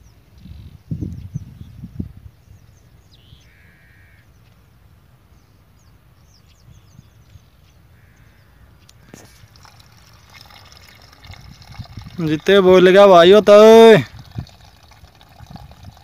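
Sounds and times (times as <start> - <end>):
small birds chirping: 0.0 - 12.3
bird calling: 3.2 - 4.3.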